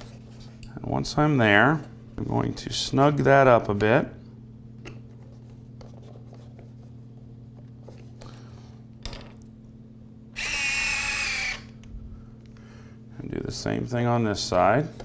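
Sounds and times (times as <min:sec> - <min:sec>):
geared motor whine: 0:10.3 - 0:12.1.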